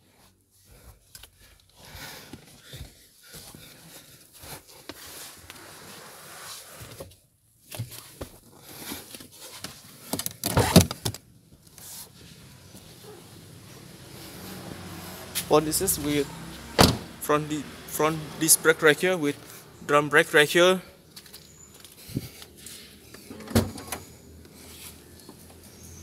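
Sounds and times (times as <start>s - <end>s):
car door handle clunk: 16.8s - 17.1s.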